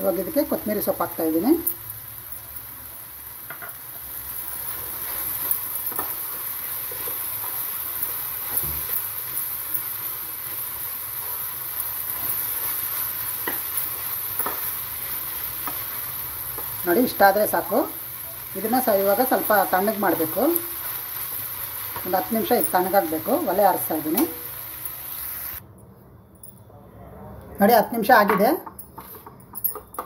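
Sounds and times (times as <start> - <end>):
food sizzling in a pan: 0.0 - 25.6
spatula scraping and tapping pan: 12.1 - 16.8.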